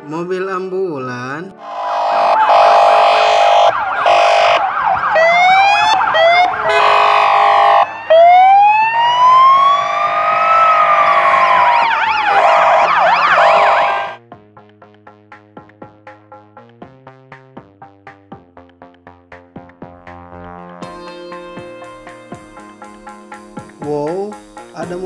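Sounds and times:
ambulance sirens: 1.6 - 14.2.

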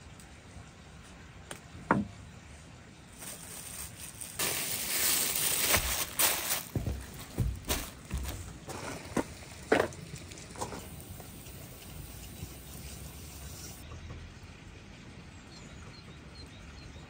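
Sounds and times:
plastic bag crinkling: 3.2 - 9.1.

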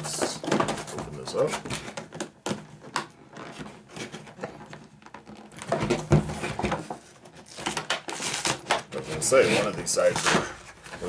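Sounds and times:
plastic blister pack crinkling: 0.0 - 11.0.

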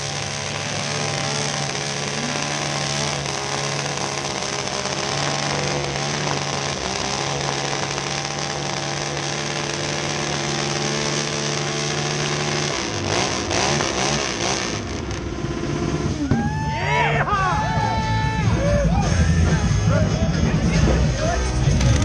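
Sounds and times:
motorcycle engine revving: 0.0 - 16.3, 21.0 - 22.0.

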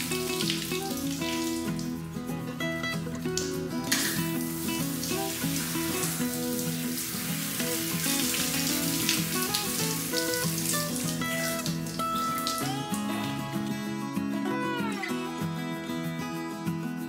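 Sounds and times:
shower spraying water: 0.0 - 13.5
background music held notes: 0.0 - 17.0.

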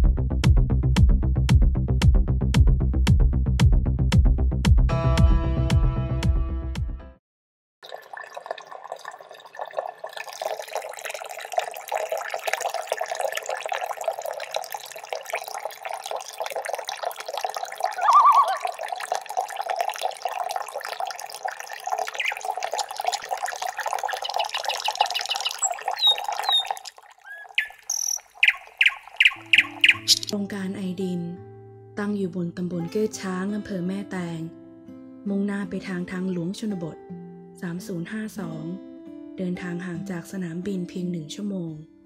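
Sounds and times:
babbling water: 7.8 - 30.4
bird chirps: 18.0 - 18.6, 22.2 - 22.5, 24.2 - 30.4.

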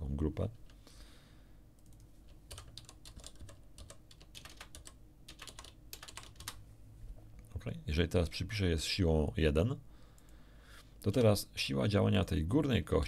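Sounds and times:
computer keyboard typing: 1.8 - 6.6.

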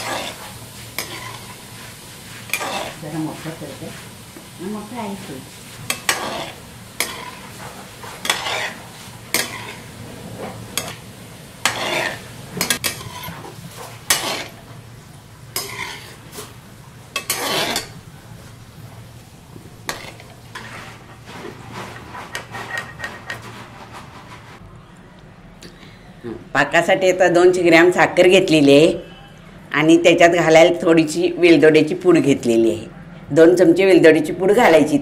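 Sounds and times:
metal skimmer scraping metal pan: 0.0 - 1.6, 5.9 - 11.0, 11.6 - 14.6, 15.6 - 16.4, 17.2 - 18.0, 19.9 - 24.6
low sizzle of frying: 0.0 - 25.0.

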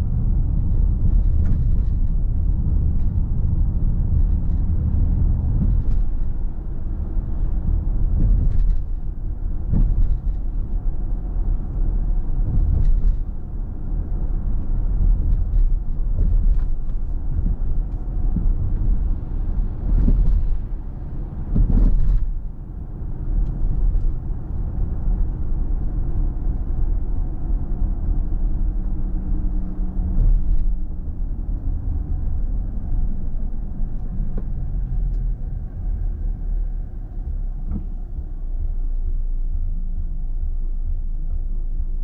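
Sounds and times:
car driving low rumble: 0.0 - 42.0.

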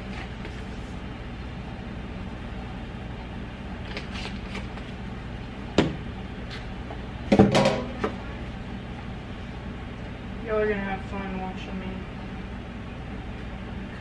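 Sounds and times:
steady low hum: 0.0 - 14.0
kitchen taps and knocks: 7.3 - 7.9.

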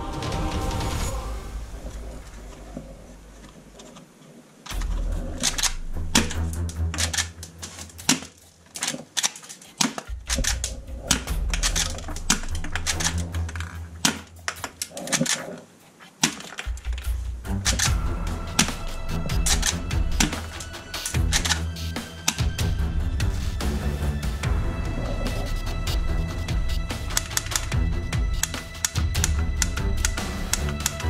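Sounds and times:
low steady drone: 0.0 - 3.8, 4.7 - 8.1, 16.7 - 31.0
plastic toy guns clicking: 4.7 - 15.6, 16.2 - 18.0, 19.4 - 22.5, 27.0 - 27.8, 28.4 - 31.0.

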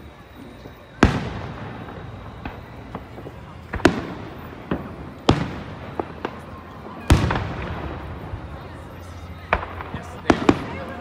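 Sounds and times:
firework pops: 0.5 - 8.2
firework sharp bangs: 0.6 - 11.0.

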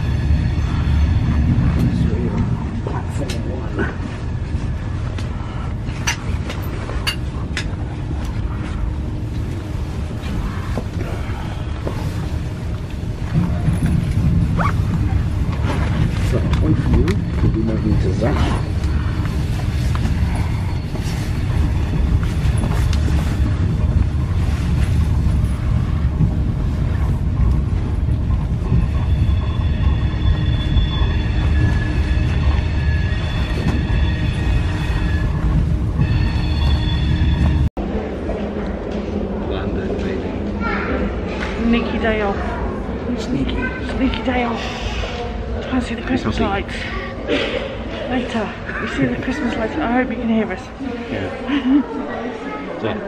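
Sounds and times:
train low rumble: 0.0 - 53.0
metallic brake squeal: 29.0 - 37.7.

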